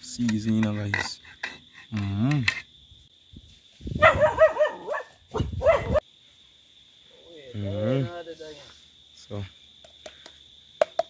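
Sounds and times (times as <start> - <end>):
dog barking: 4.0 - 6.0.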